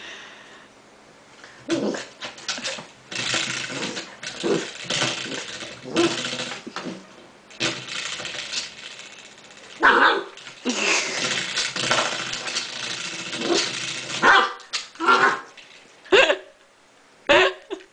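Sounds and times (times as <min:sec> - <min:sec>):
spring door stopper twanging: 0:02.0 - 0:15.4
puppy barking: 0:09.8 - 0:10.4, 0:14.2 - 0:15.5.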